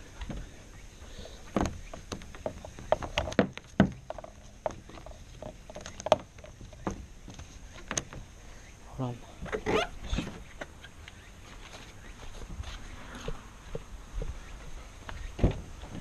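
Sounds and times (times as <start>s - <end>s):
strap knocking and rubbing on plastic: 1.5s - 8.2s.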